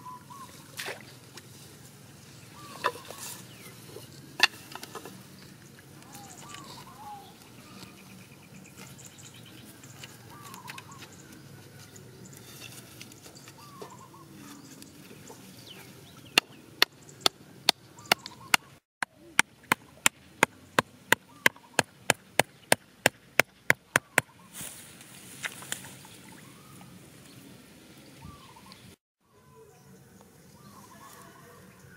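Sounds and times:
rustling grass: 0.4s - 16.3s, 23.3s - 26.3s.

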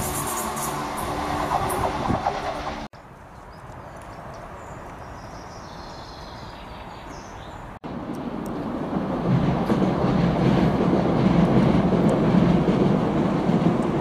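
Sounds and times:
diesel train engines droning: 0.0s - 2.9s.

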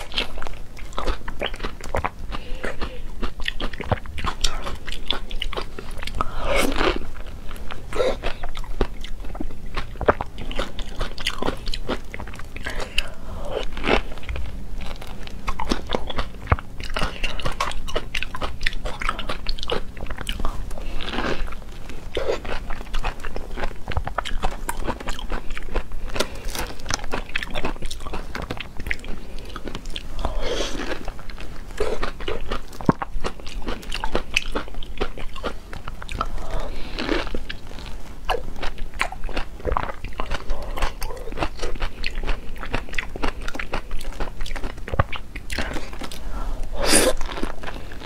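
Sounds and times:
eating juicy fruit: 0.0s - 48.0s
loud sucking: 46.4s - 47.2s.

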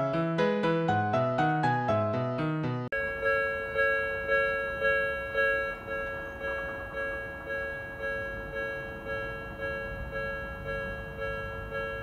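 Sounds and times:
level-crossing warning bell ringing: 2.9s - 12.0s.

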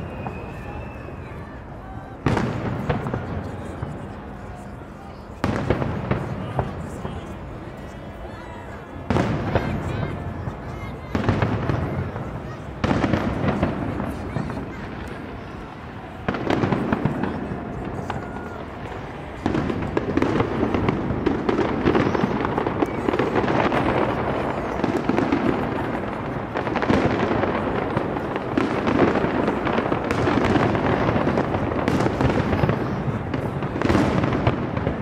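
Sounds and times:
fireworks bangs and crackles: 0.0s - 35.0s.

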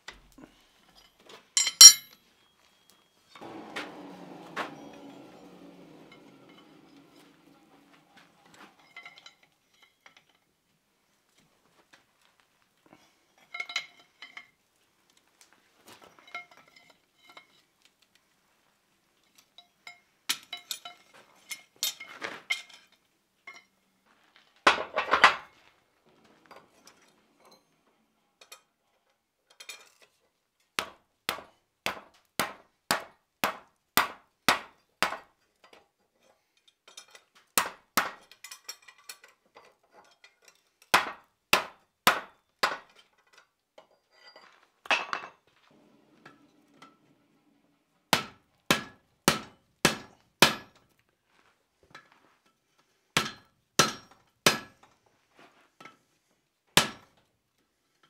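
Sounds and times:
metal clanks and scrapes: 0.9s - 2.2s, 3.4s - 10.5s, 24.7s - 30.2s, 42.9s - 48.0s.

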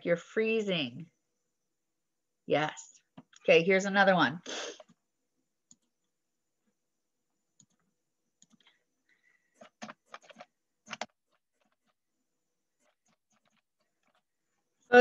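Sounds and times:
faint keyboard typing: 5.6s - 6.8s, 7.4s - 14.6s.

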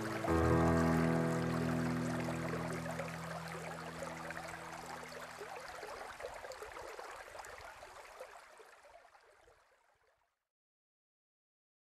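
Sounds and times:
low background music notes: 0.0s - 4.6s
stream babbling over stones: 0.0s - 10.0s.

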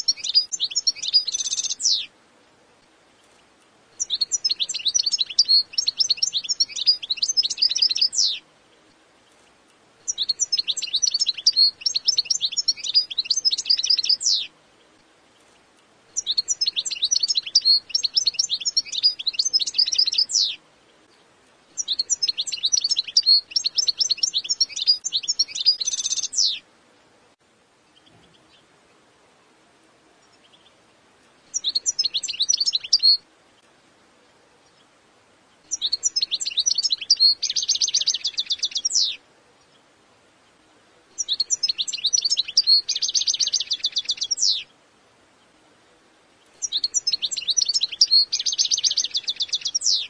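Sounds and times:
goldfinch twittering: 0.0s - 2.1s, 4.0s - 8.4s, 10.1s - 14.5s, 16.2s - 20.6s, 21.8s - 26.6s, 31.5s - 33.2s, 35.7s - 39.2s, 41.2s - 44.7s, 46.6s - 50.0s.

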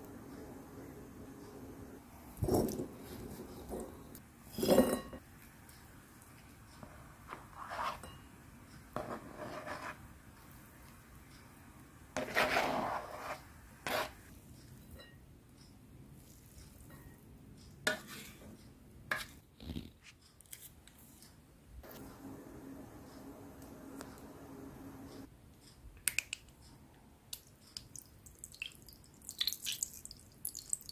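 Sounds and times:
spoon scraping and tapping bowl: 6.8s - 8.3s, 8.9s - 10.0s, 12.2s - 15.2s.

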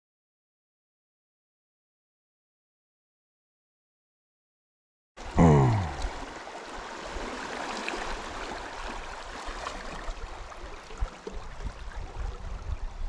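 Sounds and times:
turbulent water rushing: 5.2s - 12.5s.

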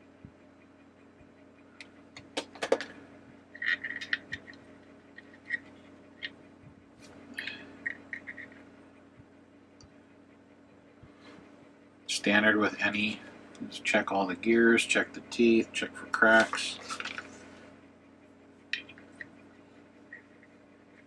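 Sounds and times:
faint steady hum: 0.0s - 21.0s
clicks and scrapes of plastic gears: 3.6s - 4.6s.

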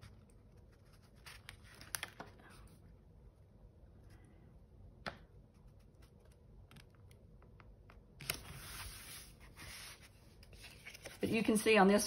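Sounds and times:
paper rustling and sliding: 8.2s - 11.6s.

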